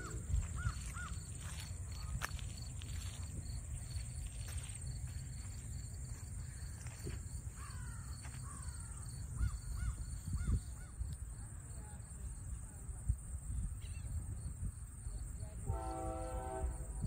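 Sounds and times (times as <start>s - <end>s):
wind rumbling on microphone: 0.0s - 6.2s, 6.8s - 17.0s.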